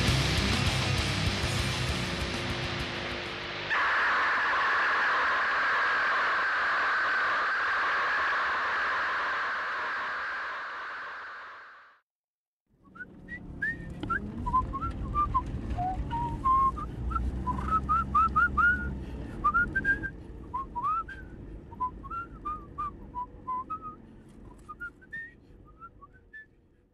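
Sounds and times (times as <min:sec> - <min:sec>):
person whistling a tune: 0:12.9 - 0:26.5
low rumble: 0:13.2 - 0:24.5.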